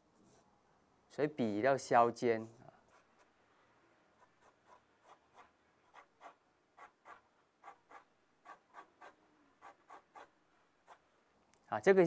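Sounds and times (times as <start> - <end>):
pencil scratching on paper: 2.8 - 3.4, 4.1 - 11.1.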